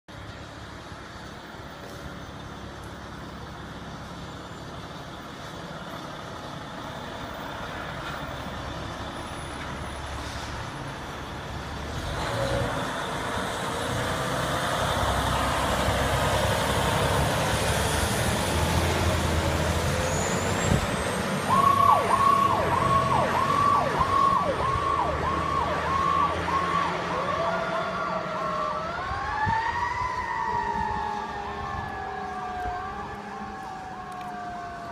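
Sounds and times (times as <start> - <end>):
fire engine rumble: 0.1 - 34.9
siren wailing: 21.5 - 34.9.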